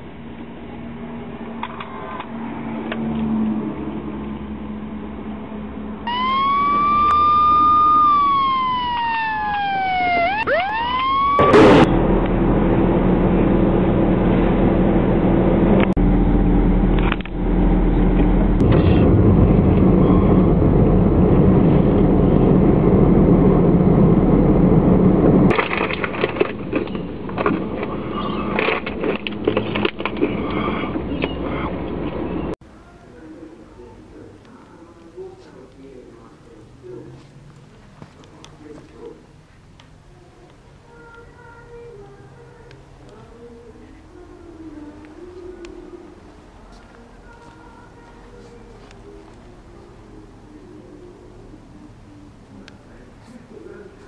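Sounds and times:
car engine rumbling: 0.0 - 54.0
police siren: 6.0 - 11.9.

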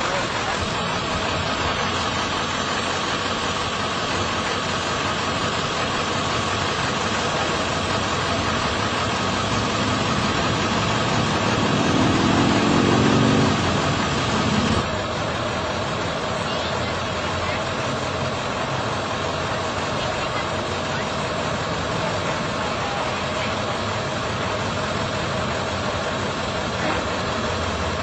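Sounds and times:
engine idling: 0.0 - 28.0
engine revving: 7.5 - 14.9.

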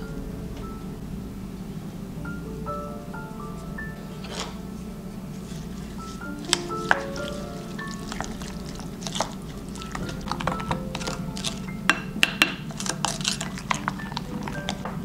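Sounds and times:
light background music: 0.0 - 15.0
wet mixing sounds: 5.3 - 15.0
wooden spoon knocking glass bowl: 8.1 - 15.0.

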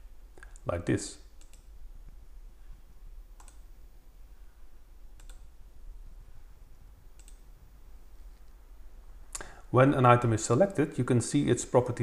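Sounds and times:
faint low hum: 0.0 - 12.0
computer mouse clicks: 1.4 - 1.7, 3.4 - 3.7, 5.2 - 5.5, 7.1 - 7.5.

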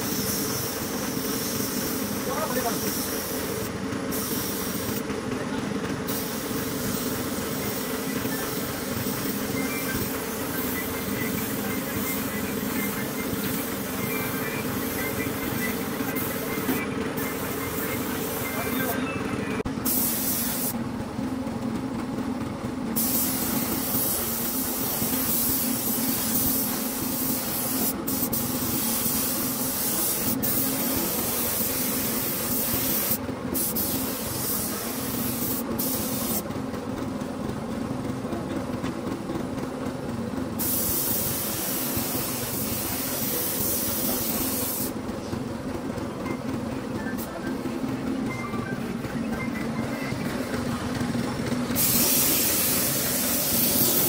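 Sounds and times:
hissing noise: 51.6 - 54.0.

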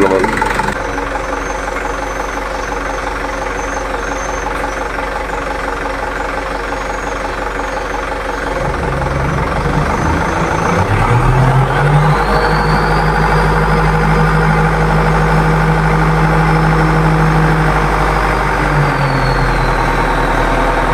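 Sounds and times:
diesel truck engine idling: 0.0 - 20.9.

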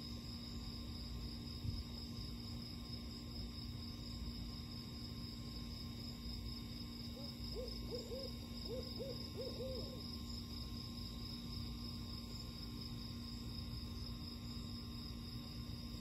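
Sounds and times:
owl hooting: 7.2 - 10.0.

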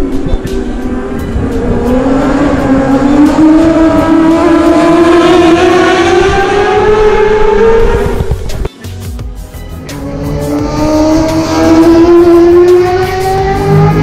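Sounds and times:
racing motorcycle accelerating: 0.0 - 8.7, 9.8 - 14.0.

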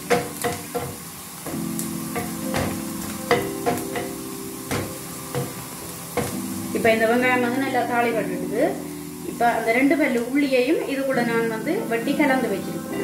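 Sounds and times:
onions sizzling in oil: 0.0 - 13.0
spatula knocking against pan: 0.1 - 5.6.

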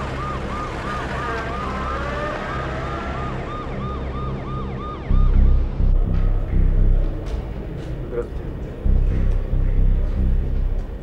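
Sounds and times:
ambulance siren yelping: 0.0 - 6.0
low steady hum: 4.4 - 11.0
loud low rumble: 5.0 - 11.0.

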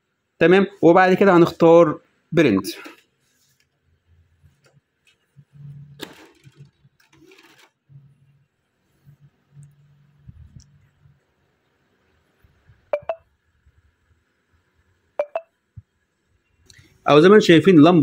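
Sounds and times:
faint low hum: 7.9 - 17.3
short electronic beeps: 12.9 - 13.2, 15.2 - 15.5.

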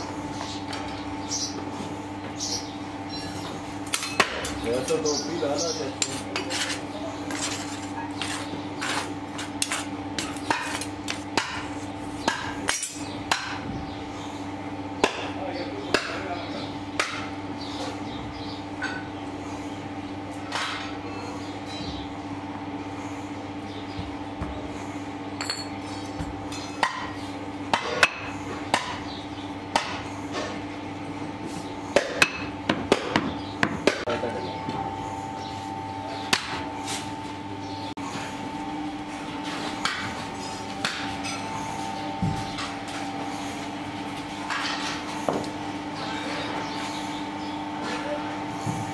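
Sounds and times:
steady low hum: 0.0 - 48.9.

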